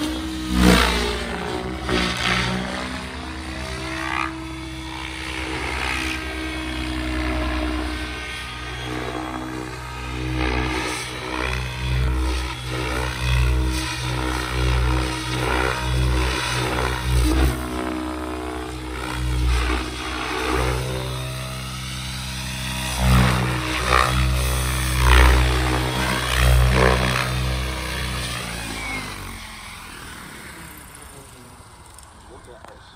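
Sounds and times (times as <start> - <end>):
rc helicopter rotor whirring: 0.0 - 32.9.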